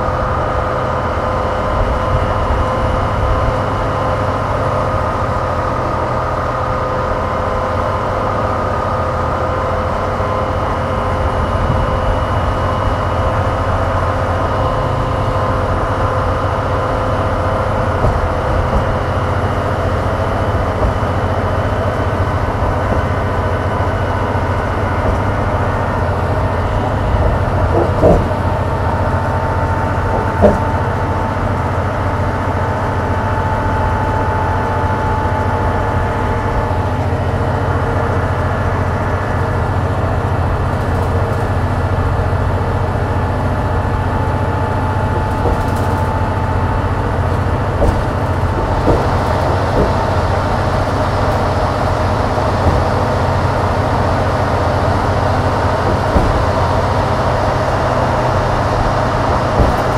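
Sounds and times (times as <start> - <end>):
bus engine drone with whine: 0.0 - 59.9
sharp rattles: 44.2 - 59.9.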